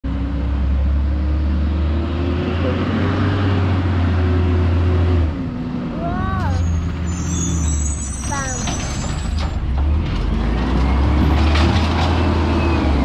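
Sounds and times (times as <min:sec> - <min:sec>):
garbage truck engine revving: 0:00.1 - 0:13.0.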